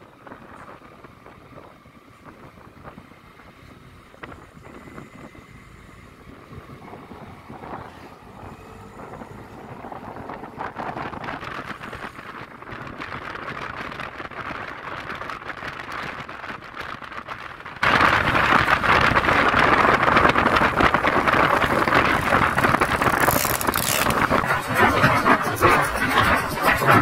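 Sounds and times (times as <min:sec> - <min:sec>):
wind and road noise: 0:00.0 - 0:27.0
scooter engine: 0:18.0 - 0:27.0.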